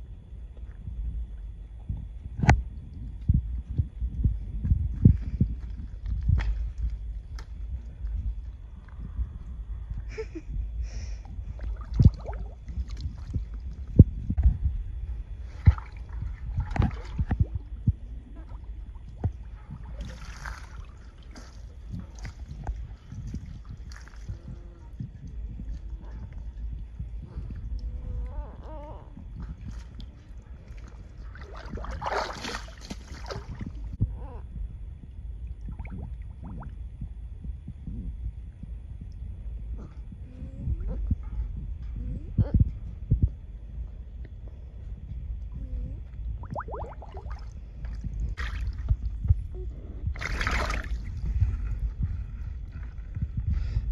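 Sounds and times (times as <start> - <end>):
dull low thumps: 0.0 - 53.9
low muffled rumble: 0.0 - 53.9
water splashing and sloshing: 10.9 - 28.3, 29.3 - 34.0, 46.4 - 49.4, 50.0 - 53.9.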